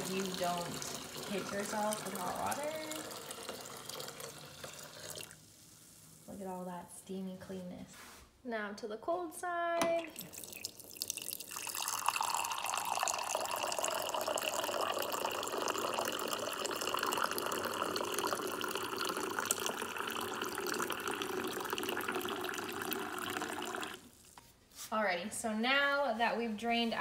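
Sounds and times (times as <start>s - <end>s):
water running into a mug: 0.0s - 5.5s, 9.9s - 24.4s.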